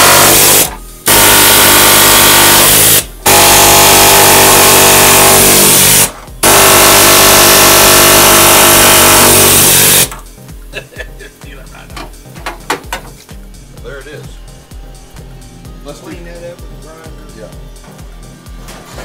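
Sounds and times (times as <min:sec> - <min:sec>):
air hammer cutting sheet metal: 0:00.0 - 0:10.1.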